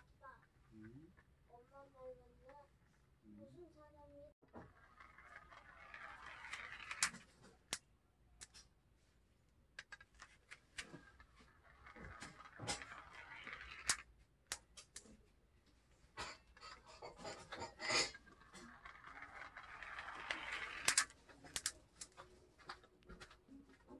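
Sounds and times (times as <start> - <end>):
plastic track pieces clicking: 4.5 - 8.7, 9.8 - 15.2, 16.3 - 22.3.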